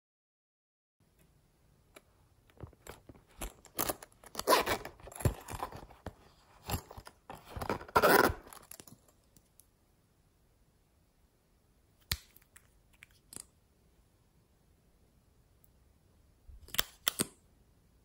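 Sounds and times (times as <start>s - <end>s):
plastic containers clicking and scraping: 2.5s - 9.0s.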